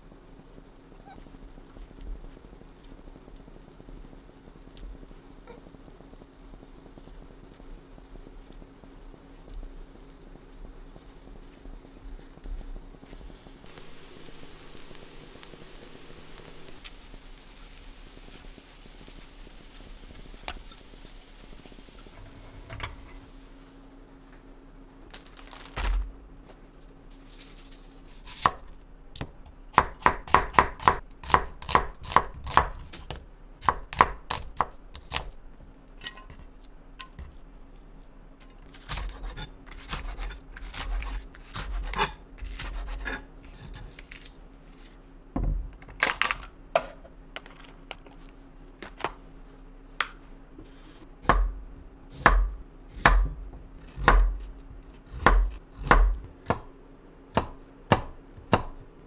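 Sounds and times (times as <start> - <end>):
knife chopping on cutting board: 57.3 - 58.8.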